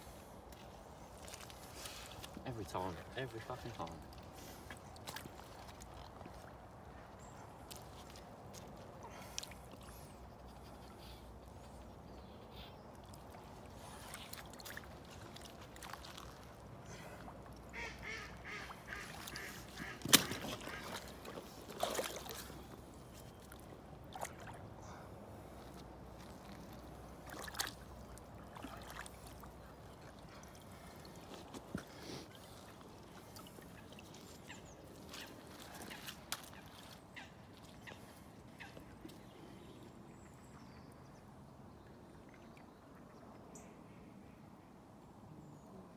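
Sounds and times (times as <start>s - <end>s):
water splashing: 13.0s - 24.7s, 26.3s - 38.7s
waterfowl calling: 17.7s - 21.4s.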